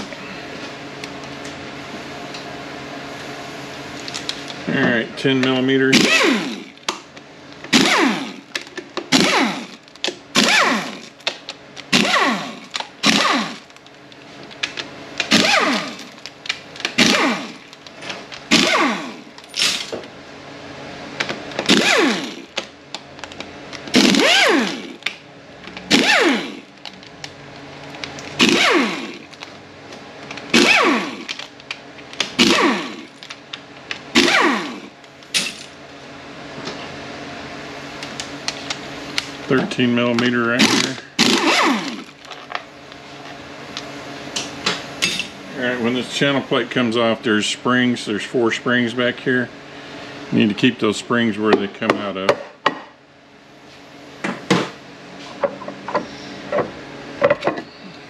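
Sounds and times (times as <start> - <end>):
pneumatic air ratchet whining: 5.9 - 6.9, 7.7 - 11.2, 11.8 - 13.8, 15.2 - 17.8, 18.5 - 20.0, 21.6 - 22.6, 23.9 - 25.1, 25.8 - 26.8, 28.3 - 29.4, 30.4 - 31.5, 32.2 - 33.3, 34.1 - 35.7, 40.6 - 42.3.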